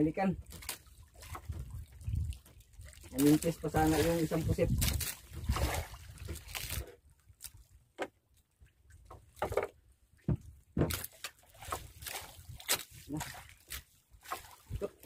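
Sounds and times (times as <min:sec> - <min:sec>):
water sloshing against boat: 0:00.0 - 0:15.0
light knocks on boat: 0:08.0 - 0:08.2, 0:09.1 - 0:11.1.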